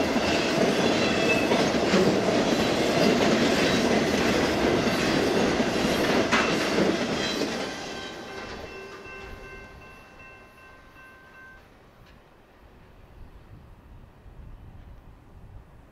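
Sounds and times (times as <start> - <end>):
train wheels clattering over rails: 0.0 - 9.7.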